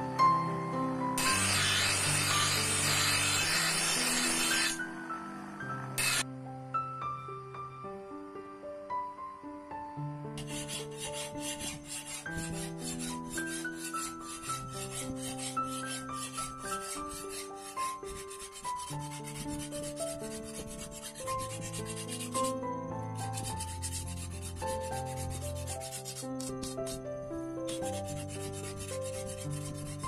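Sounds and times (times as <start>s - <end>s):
wooden stick scraping steel blade: 1.2s - 4.9s, 6.0s - 6.2s, 10.4s - 22.6s, 23.2s - 27.0s, 27.7s - 30.0s.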